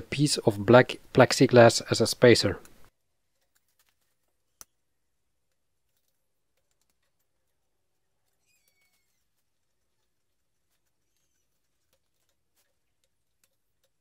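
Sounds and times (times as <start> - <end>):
faint high chirps: 8.2 - 9.4.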